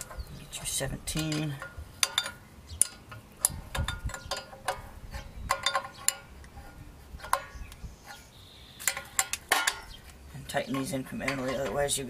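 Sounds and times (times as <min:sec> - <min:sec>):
wrench clinking on metal bolts: 0:00.0 - 0:06.3, 0:08.8 - 0:10.0.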